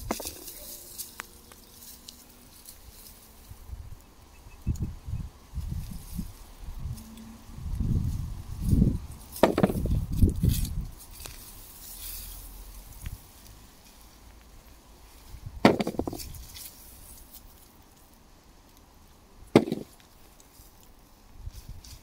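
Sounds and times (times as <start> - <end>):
hands rustling in soil and straw: 0.0 - 22.0
sharp knocks: 9.4 - 9.9, 15.6 - 16.2, 19.6 - 19.9.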